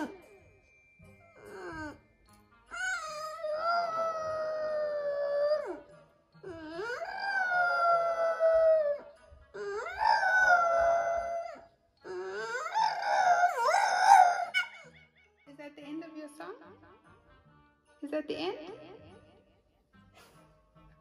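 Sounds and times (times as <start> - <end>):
dog howling: 0.0 - 0.2, 1.3 - 2.0, 2.7 - 14.9.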